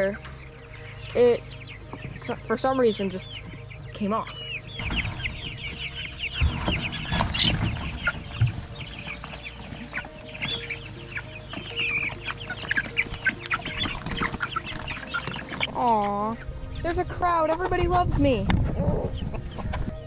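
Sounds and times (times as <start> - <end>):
chickens peeping and clucking: 0.0 - 20.0
low thumps: 1.8 - 11.8.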